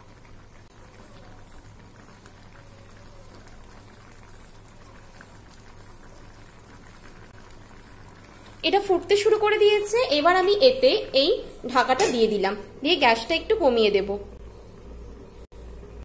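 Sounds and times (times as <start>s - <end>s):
broth bubbling with pops: 0.0s - 9.9s.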